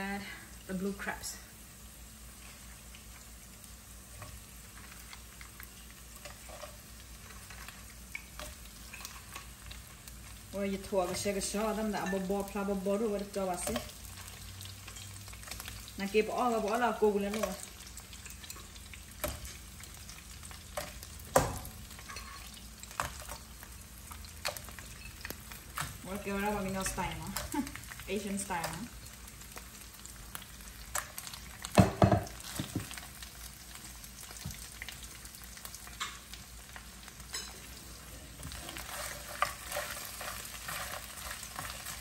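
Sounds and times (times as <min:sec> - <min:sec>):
food sizzling in oil: 0:00.0 - 0:42.0
oil popping and crackling: 0:02.3 - 0:37.5, 0:38.4 - 0:42.0.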